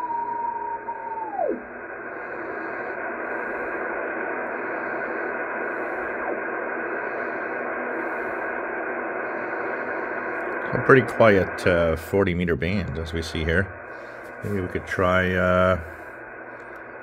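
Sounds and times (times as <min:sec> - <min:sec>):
radio whistle sliding down: 0:00.0 - 0:01.8
radio band noise hiss: 0:00.0 - 0:17.0.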